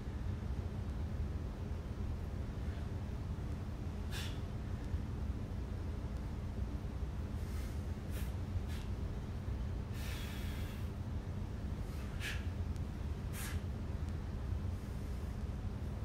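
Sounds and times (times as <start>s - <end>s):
steady low hum: 0.0s - 16.0s
man breathing hard: 4.0s - 4.6s, 7.3s - 9.0s, 9.8s - 11.0s, 11.8s - 12.6s, 13.2s - 13.7s.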